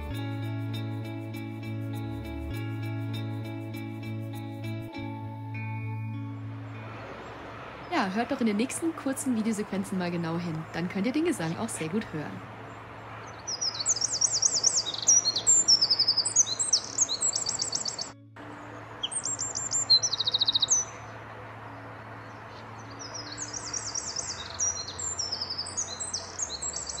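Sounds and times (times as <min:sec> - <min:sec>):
bird singing rapid trills: 0:09.3 - 0:18.2, 0:19.0 - 0:27.0.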